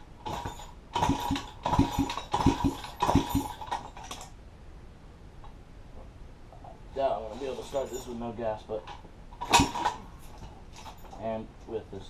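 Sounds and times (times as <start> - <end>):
metal clicks and clinks: 0.2 - 4.4, 8.8 - 11.3.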